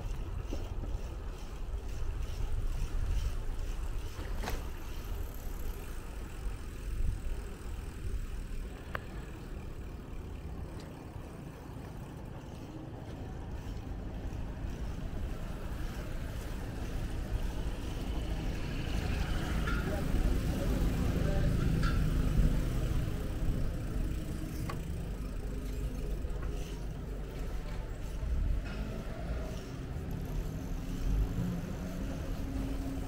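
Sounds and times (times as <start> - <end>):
bicycle road noise: 0.0 - 33.0.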